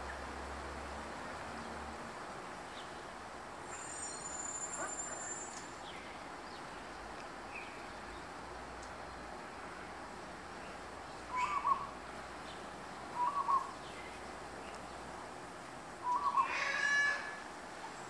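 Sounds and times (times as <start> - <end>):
outdoor background hiss: 0.0 - 18.0
faint high chirps: 3.7 - 5.7
high-pitched ringing trill: 3.8 - 5.5.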